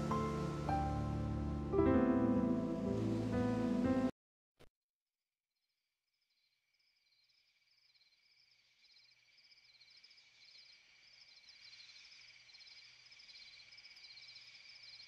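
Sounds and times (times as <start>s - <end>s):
insects chirping: 6.2s - 15.0s.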